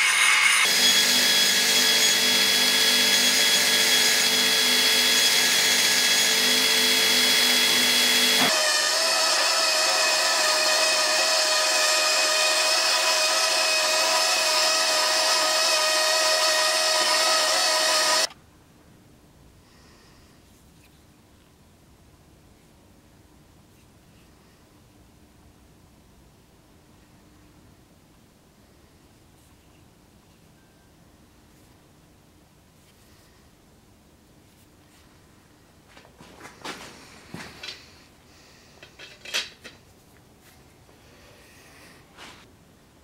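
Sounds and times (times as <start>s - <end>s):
belt sander whine: 0.0s - 18.4s
rotary tool grinding metal: 0.0s - 18.4s.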